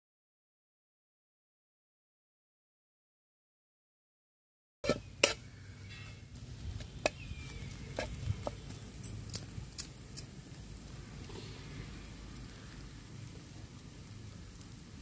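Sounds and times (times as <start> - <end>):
metal spatula scraping frying pan: 4.8 - 6.2, 7.9 - 8.6.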